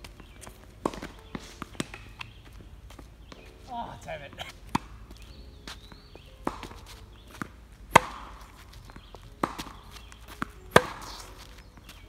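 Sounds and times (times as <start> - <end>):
tennis ball struck by racquets: 0.0 - 3.7, 4.3 - 12.0
tennis ball bouncing on court: 0.0 - 12.0.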